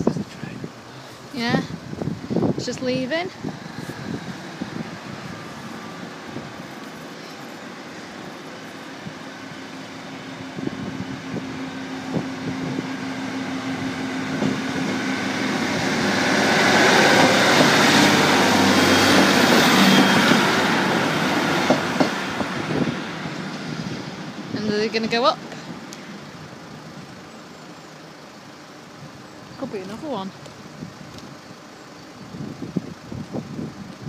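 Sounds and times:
train engine: 0.0 - 34.0
train wheels clicking over rail joints: 12.0 - 26.0.

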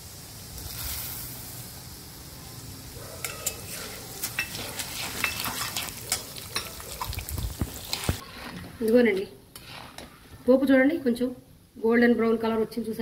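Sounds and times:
lentils sizzling in hot oil: 0.0 - 10.6
steady frying: 0.0 - 11.2
metal spatula clinking and scraping: 3.2 - 10.2.

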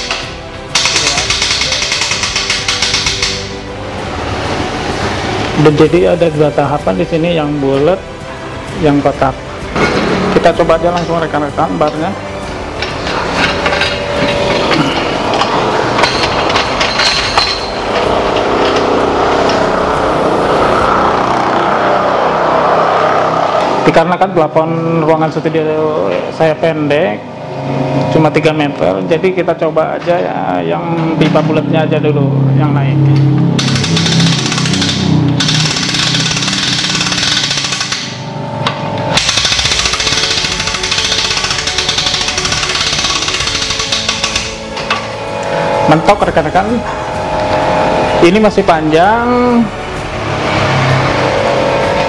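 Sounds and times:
metal clanks and knocks: 0.0 - 3.6, 12.7 - 19.7, 33.6 - 45.3
winch ratchet clicking: 0.0 - 3.6, 33.6 - 38.2, 39.2 - 45.0
steady drone: 0.0 - 29.8, 30.6 - 52.0.

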